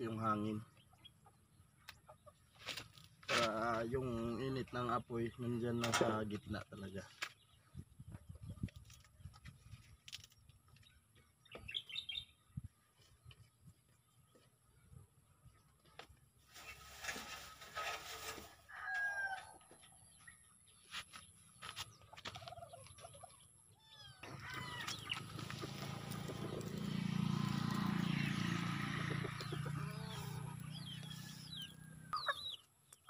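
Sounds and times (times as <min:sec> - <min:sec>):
chickens clucking: 0:00.8 - 0:02.8, 0:21.9 - 0:33.0
rooster crowing: 0:18.6 - 0:19.6, 0:24.2 - 0:25.2.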